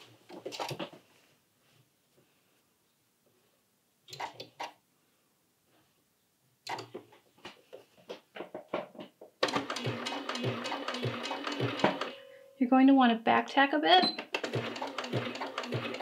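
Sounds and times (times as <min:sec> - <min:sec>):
sewing machine stitching: 0:09.4 - 0:12.2, 0:14.2 - 0:16.0
sewing machine hum: 0:09.4 - 0:12.3, 0:14.3 - 0:16.0.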